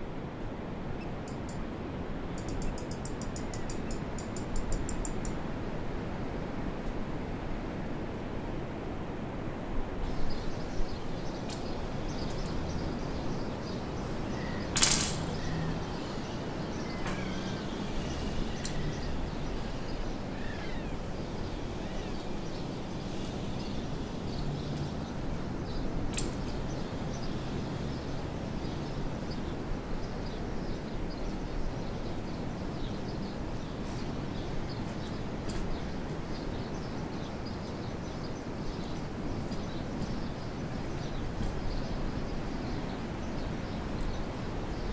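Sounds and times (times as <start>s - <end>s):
steady background hiss: 0.0s - 44.9s
sharp clicks: 14.7s - 15.4s.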